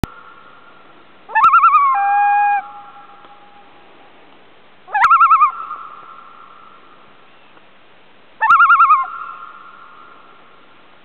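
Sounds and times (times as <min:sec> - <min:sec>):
loon calling with tremolo: 0:01.3 - 0:03.6, 0:04.9 - 0:06.8, 0:08.4 - 0:10.2.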